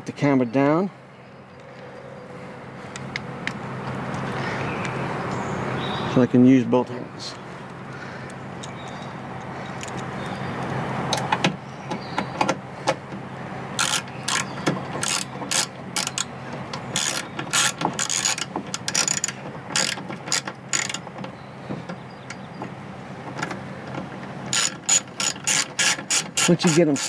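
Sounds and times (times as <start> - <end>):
hand ratchet clicking: 13.8 - 21.0, 24.5 - 27.0.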